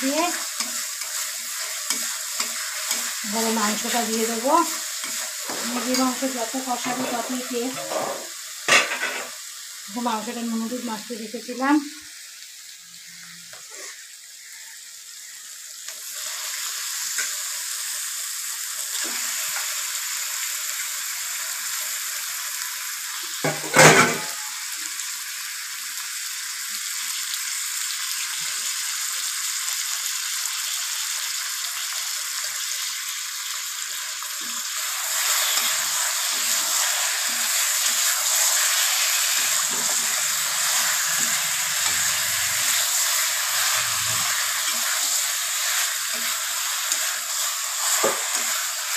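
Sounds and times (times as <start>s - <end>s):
spatula turning meat in pan: 0.0s - 9.0s, 32.4s - 48.9s
chicken sizzling in hot oil: 0.0s - 48.9s.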